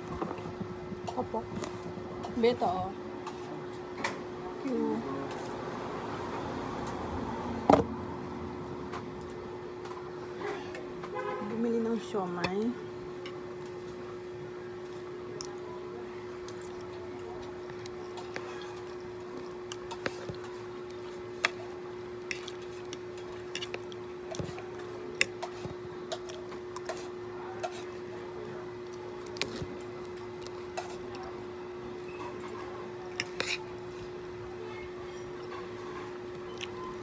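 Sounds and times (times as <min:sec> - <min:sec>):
wet chewing: 0:16.5 - 0:28.0, 0:28.8 - 0:31.4, 0:36.3 - 0:36.9.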